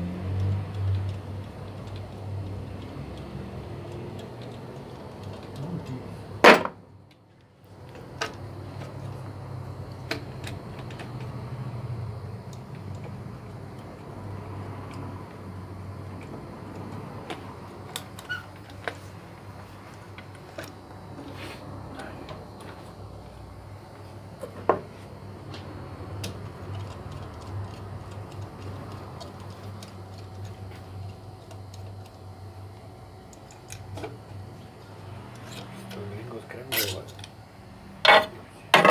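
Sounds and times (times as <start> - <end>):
steady low hum: 0.0 - 38.9
hand tools clicking and tapping: 0.3 - 6.0, 25.5 - 32.2.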